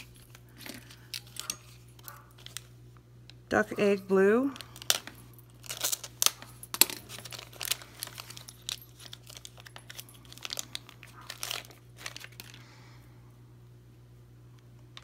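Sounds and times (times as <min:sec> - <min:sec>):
plastic bag crinkling: 0:00.0 - 0:02.8, 0:04.4 - 0:12.7.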